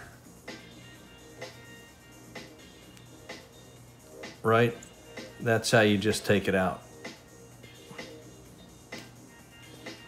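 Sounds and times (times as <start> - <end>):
faint background music: 0.0 - 10.0.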